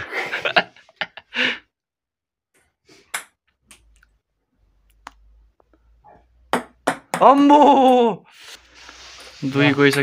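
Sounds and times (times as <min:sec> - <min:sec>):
ping-pong ball bouncing: 0:06.5 - 0:08.0.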